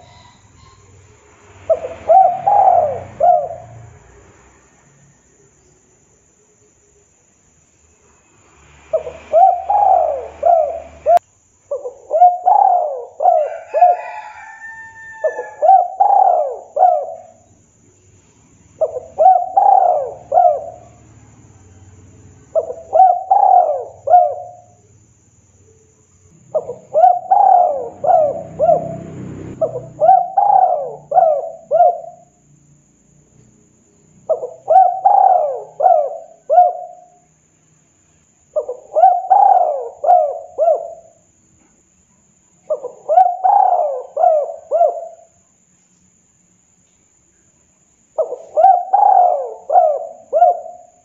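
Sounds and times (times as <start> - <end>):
dove cooing: 0.0 - 4.0, 8.9 - 17.5, 18.8 - 21.2, 22.5 - 24.8, 26.5 - 32.4, 34.2 - 37.2, 38.5 - 41.3, 42.6 - 45.4, 48.2 - 51.0.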